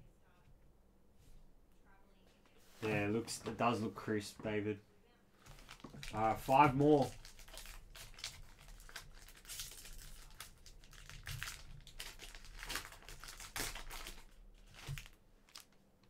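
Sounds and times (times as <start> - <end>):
foil wrapper crinkling: 5.4 - 15.8.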